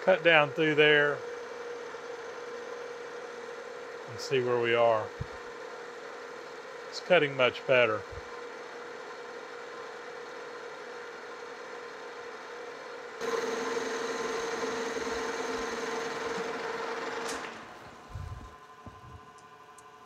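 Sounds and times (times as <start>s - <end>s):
metal lathe cutting hum: 13.2s - 18.5s.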